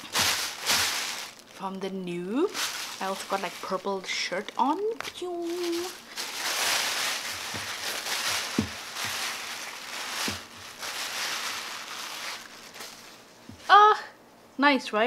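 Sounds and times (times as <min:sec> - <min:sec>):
plastic bag crinkling: 0:00.0 - 0:13.4
plastic containers set on table: 0:05.0 - 0:13.1.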